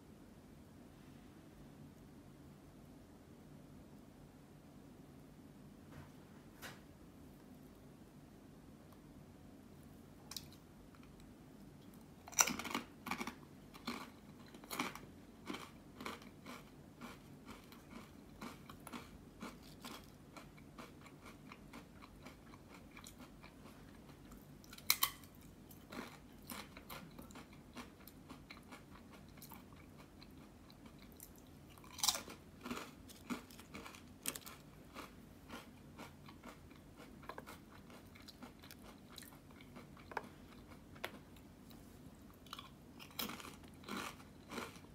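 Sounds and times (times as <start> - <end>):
person crunching potato crisp: 10.3 - 44.9.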